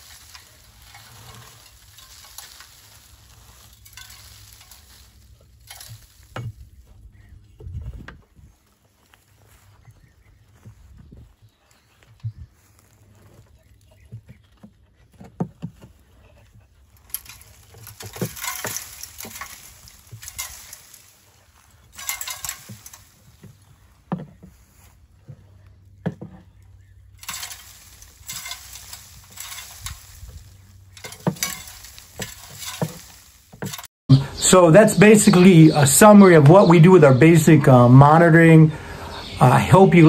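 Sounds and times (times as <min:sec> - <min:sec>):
dusty material falling: 0:00.0 - 0:06.7, 0:17.0 - 0:23.9, 0:27.1 - 0:35.3
scraping and rustling debris: 0:00.0 - 0:09.9, 0:11.7 - 0:40.0.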